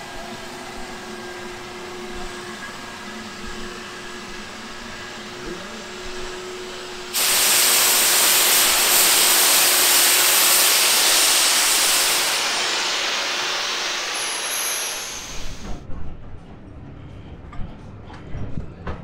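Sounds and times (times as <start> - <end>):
steam hissing from safety valves: 7.0 - 15.8.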